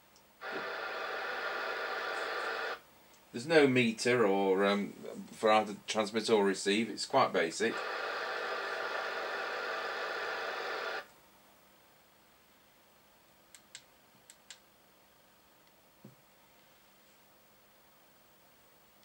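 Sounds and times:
radio receiver hiss: 0:00.4 - 0:02.8, 0:07.1 - 0:11.1.

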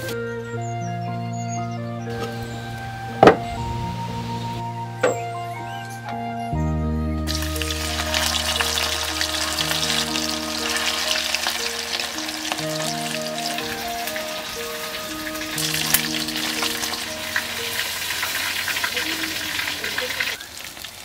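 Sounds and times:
slow background music: 0:00.0 - 0:19.2
chicken sizzling in hot oil: 0:07.3 - 0:21.0.

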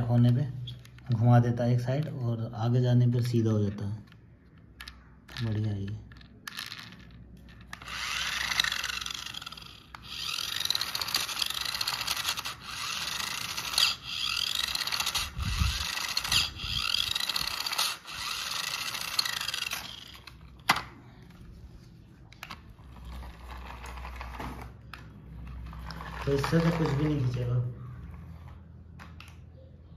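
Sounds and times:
toy car motor whirring: 0:04.8 - 0:20.6, 0:22.8 - 0:27.5.

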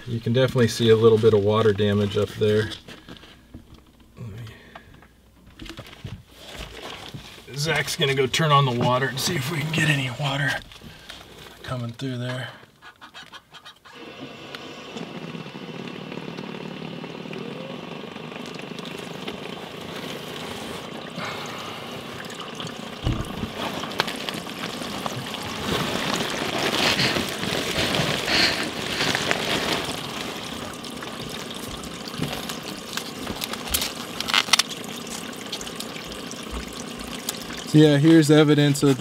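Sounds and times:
water draining through pipe: 0:06.7 - 0:13.1, 0:13.8 - 0:39.0
thump: 0:23.0 - 0:23.5.

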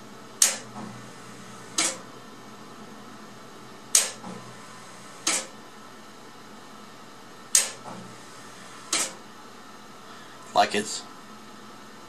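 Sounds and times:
heavy relays clacking: 0:05.2 - 0:05.5, 0:08.9 - 0:09.2.

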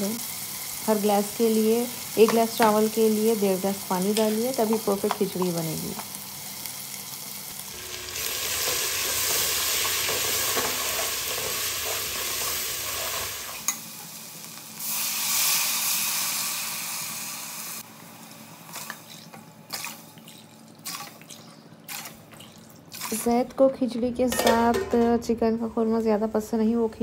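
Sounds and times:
onions sizzling in hot oil: 0:00.0 - 0:19.9
ladle stirring in pot: 0:18.7 - 0:23.2.

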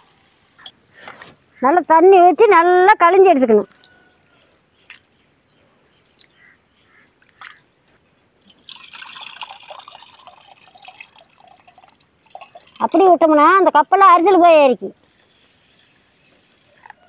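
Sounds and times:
water trickling into a steel pot: 0:08.4 - 0:13.4.

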